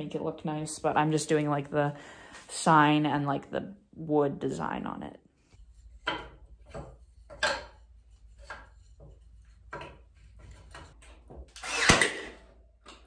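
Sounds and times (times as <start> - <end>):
nail gun firing: 11.6 - 12.5.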